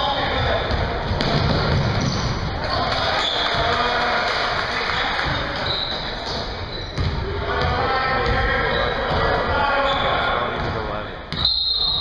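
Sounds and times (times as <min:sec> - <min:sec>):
echoing voices: 0:00.0 - 0:11.4
basketball bouncing on hardwood: 0:00.7 - 0:02.2.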